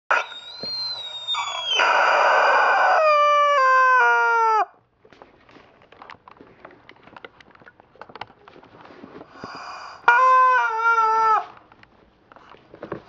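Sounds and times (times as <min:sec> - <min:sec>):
rubber chicken toy squawk: 0:00.1 - 0:04.7, 0:10.1 - 0:11.6
faint clicks and rustling: 0:05.0 - 0:09.6.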